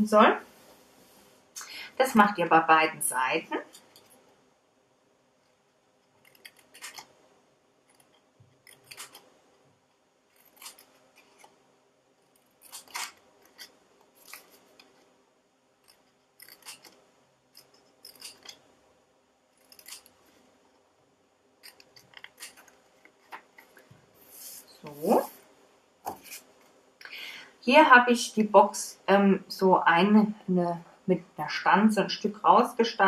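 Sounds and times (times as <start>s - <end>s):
scissors snipping cardstock: 6.2s - 7.1s, 7.9s - 9.3s, 10.4s - 11.6s, 12.6s - 14.9s, 15.9s - 17.0s, 19.6s - 20.2s.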